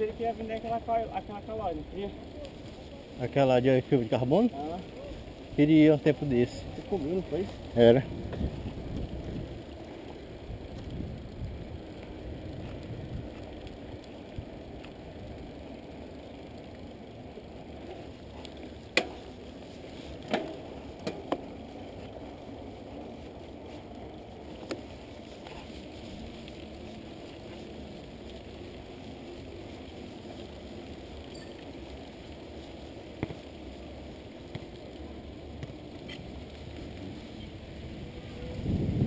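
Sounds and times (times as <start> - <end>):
bike tyre and wind noise: 0.0 - 39.0
bike knocks and rattles: 18.8 - 19.3, 20.2 - 21.5, 33.1 - 33.5, 35.5 - 36.3.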